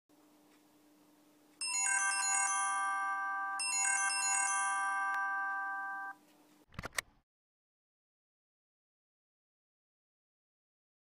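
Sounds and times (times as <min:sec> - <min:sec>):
faint steady hum: 0:00.1 - 0:06.7
phone ringtone melody: 0:01.6 - 0:06.2.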